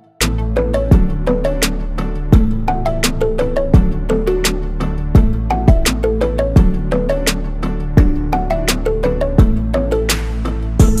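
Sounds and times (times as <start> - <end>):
deep kick drum: 0.9 - 1.2, 2.4 - 2.6, 3.8 - 4.0, 5.2 - 5.9, 6.6 - 6.9, 8.0 - 8.3, 9.4 - 9.7, 10.8 - 11.0.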